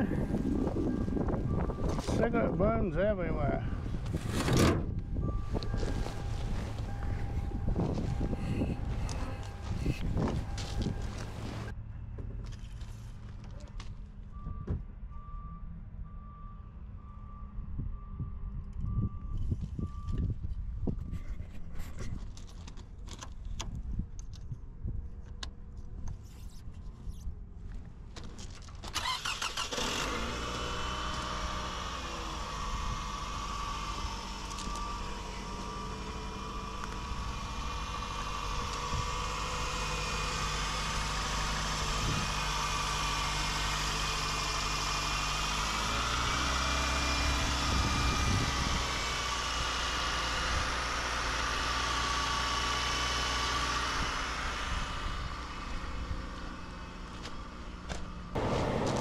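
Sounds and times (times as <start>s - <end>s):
car engine starting and idling: 0.0s - 11.7s, 28.7s - 59.0s.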